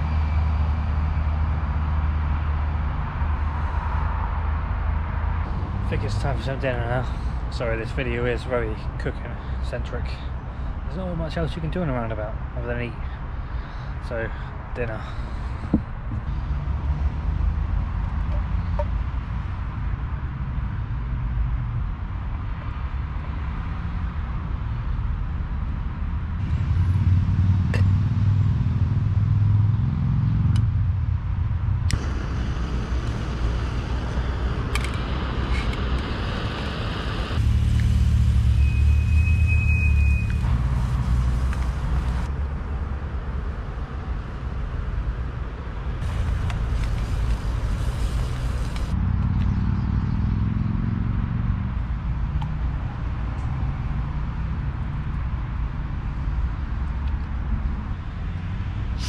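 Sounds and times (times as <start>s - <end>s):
vehicles passing: 0.0s - 59.0s.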